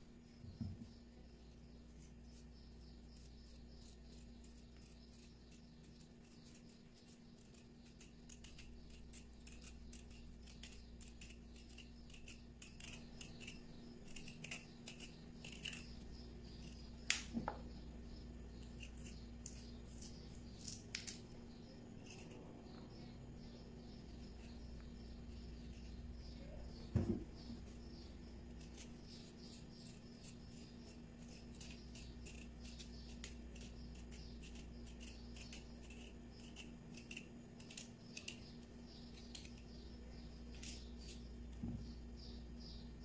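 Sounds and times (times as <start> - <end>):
knife cutting vegetable skin: 2.0 - 17.5, 18.6 - 21.2, 27.8 - 39.8, 40.4 - 41.3.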